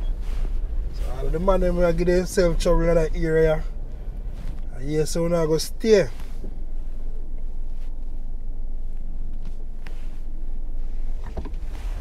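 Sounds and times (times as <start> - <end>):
vehicle driving rumble: 0.0 - 12.0.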